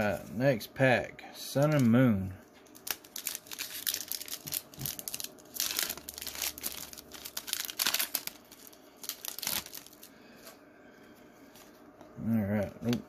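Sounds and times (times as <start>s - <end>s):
foil wrapper crinkling: 2.6s - 10.2s.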